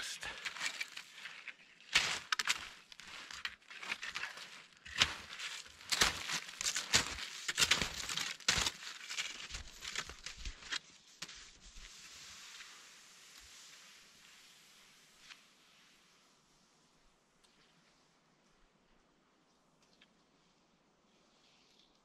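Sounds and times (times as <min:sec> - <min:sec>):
skis crunching on icy snow: 0:00.0 - 0:16.0.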